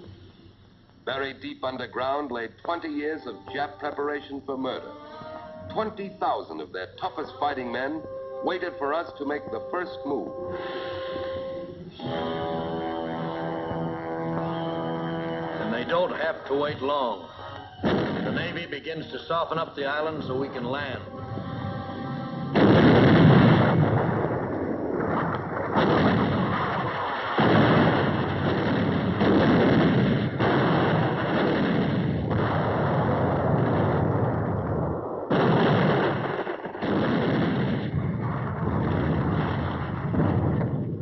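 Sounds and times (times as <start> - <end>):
heavy guns firing: 17.8 - 18.7, 22.6 - 34.0, 35.3 - 40.8
low rumble: 20.0 - 35.4.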